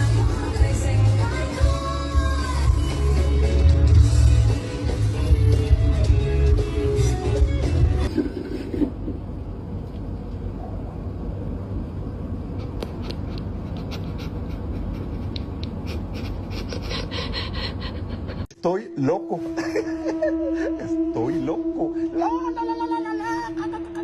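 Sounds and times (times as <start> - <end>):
background music: 0.0 - 8.1.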